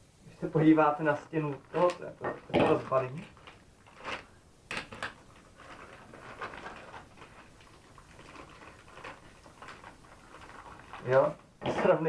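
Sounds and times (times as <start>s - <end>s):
paper wrapping rustling: 1.0s - 12.0s.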